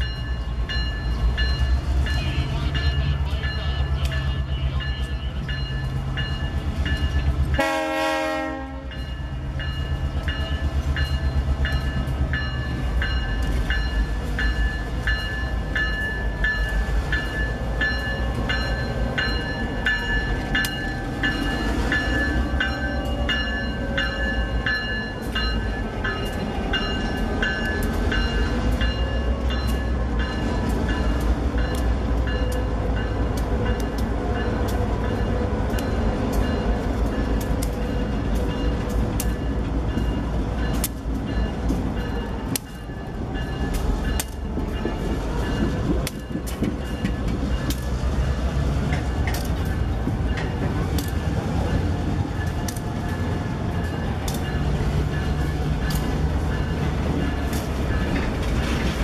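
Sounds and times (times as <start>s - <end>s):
diesel locomotives passing: 0.0s - 59.0s
locomotive horn blast: 7.6s - 9.0s.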